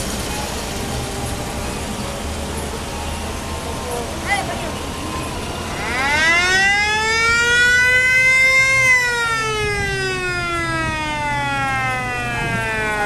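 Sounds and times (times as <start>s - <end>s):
truck engines running: 0.0s - 13.0s
siren rising and falling: 4.8s - 13.0s.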